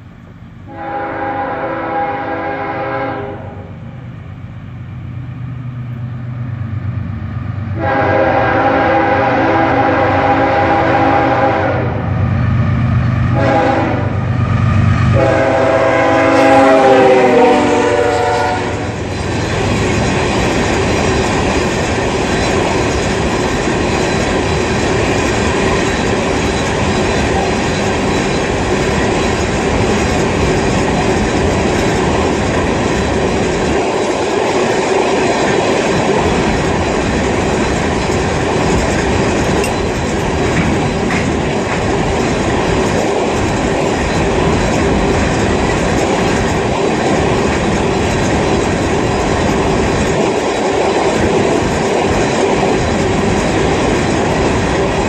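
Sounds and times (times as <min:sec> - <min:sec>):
train cars rolling on rails: 0:00.0 - 0:55.0
locomotive air horn blasts: 0:00.7 - 0:03.8, 0:07.8 - 0:12.1, 0:13.3 - 0:14.2, 0:15.1 - 0:19.0.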